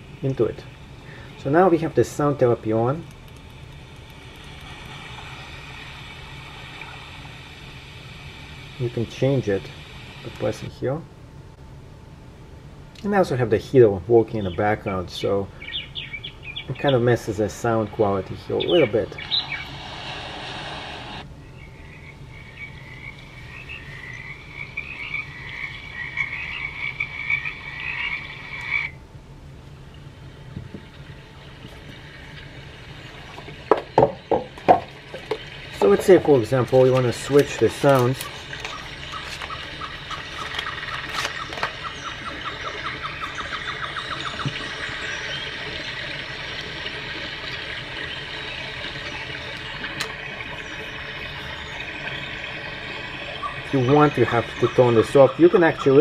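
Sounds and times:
room heater humming: 0:00.0 - 0:56.0
water-like rushing noise: 0:17.9 - 0:21.3, 0:29.9 - 0:56.0
frog chorus from small speaker: 0:18.4 - 0:29.0, 0:33.7 - 0:56.0.

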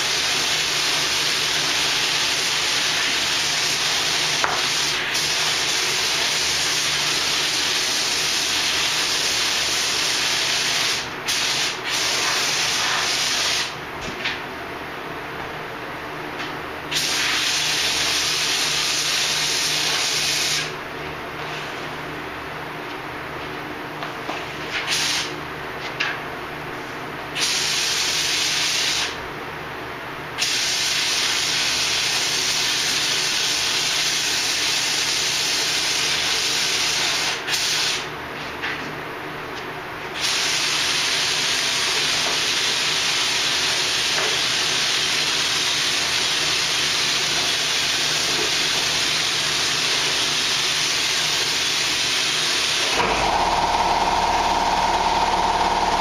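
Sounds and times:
paint spray gun hissing: 0:16.9 - 0:20.7, 0:24.9 - 0:25.3, 0:40.2 - 0:56.0.

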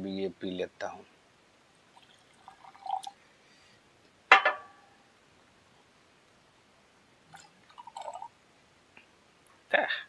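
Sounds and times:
water pouring into glass: 0:01.9 - 0:03.2, 0:07.3 - 0:08.3.

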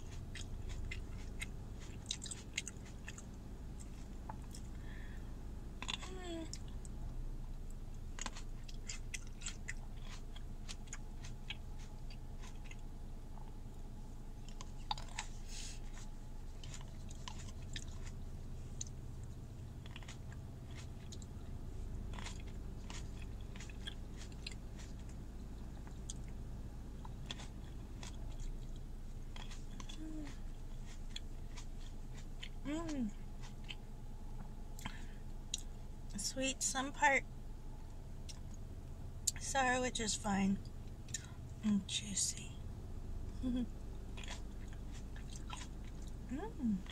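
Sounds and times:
person chewing food: 0:00.0 - 0:36.1, 0:37.8 - 0:39.4, 0:40.6 - 0:41.6, 0:43.2 - 0:46.9.

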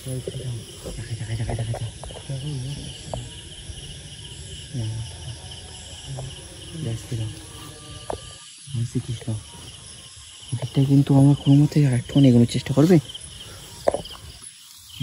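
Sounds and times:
quiet low voices: 0:00.0 - 0:09.8
crickets chirping: 0:00.0 - 0:15.0.

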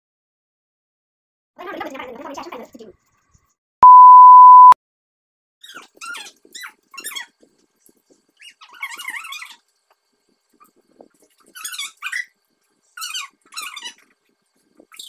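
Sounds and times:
test tone beep: 0:03.8 - 0:04.8.

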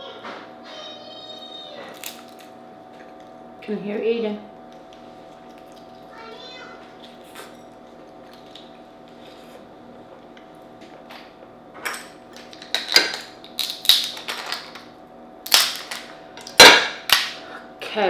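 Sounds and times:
crab shell cracking: 0:01.9 - 0:02.6, 0:12.4 - 0:14.6, 0:15.4 - 0:17.4.

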